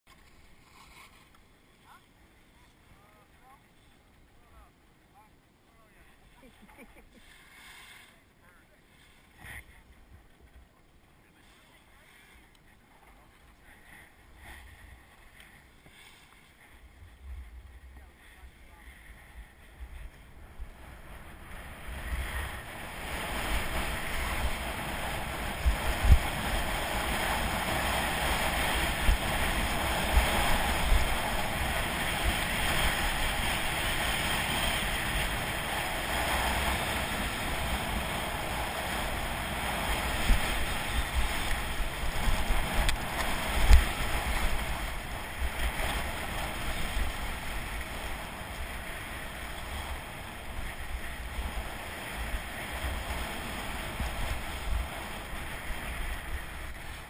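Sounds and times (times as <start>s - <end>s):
skis scraping over packed snow: 0.1s - 4.6s, 5.2s - 57.0s
wind buffeting microphone: 18.7s - 57.0s.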